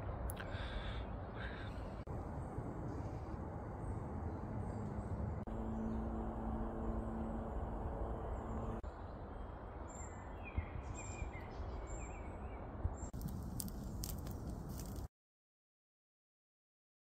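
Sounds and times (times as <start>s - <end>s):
steady low hum: 0.0s - 9.8s
birdsong chirps: 0.0s - 15.0s
campfire crackling and popping: 13.1s - 15.1s.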